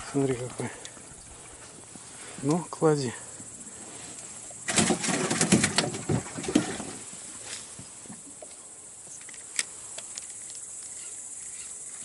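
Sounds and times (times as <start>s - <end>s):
high insect chirring: 0.0s - 6.3s, 7.0s - 12.0s
fish splashing and slapping: 4.6s - 7.1s.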